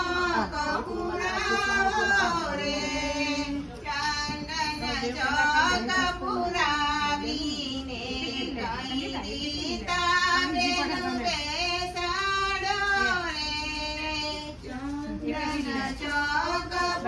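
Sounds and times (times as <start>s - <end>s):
women singing: 0.0s - 17.0s.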